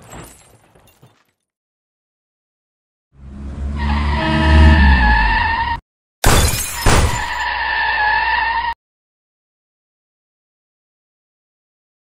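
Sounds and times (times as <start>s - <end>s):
engine revving: 3.2s - 5.8s
glass and metal smashing: 6.2s - 7.4s.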